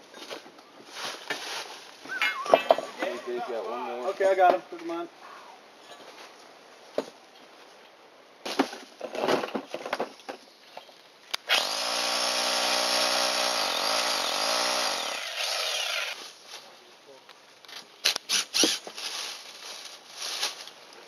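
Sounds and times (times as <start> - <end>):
power drill boring into concrete: 11.5 - 16.2.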